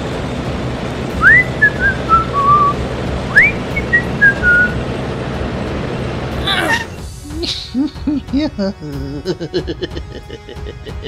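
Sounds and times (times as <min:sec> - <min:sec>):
person whistling: 0:01.2 - 0:04.8.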